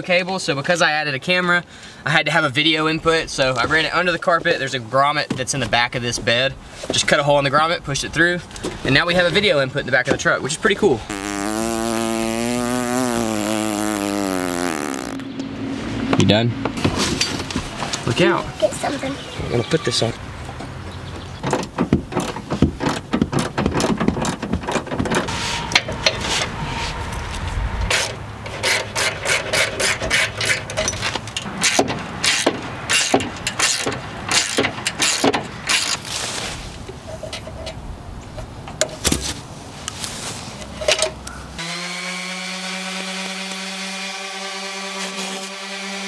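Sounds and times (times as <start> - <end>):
knocks and clatter of hand work: 21.4 - 25.3
orbital sander whining: 41.6 - 46.0.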